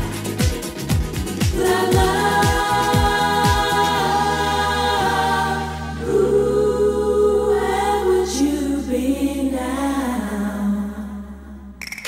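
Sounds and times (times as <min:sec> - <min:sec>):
dance-pop music: 0:00.0 - 0:06.3
bass line: 0:00.0 - 0:11.8
female voices singing: 0:01.5 - 0:11.6.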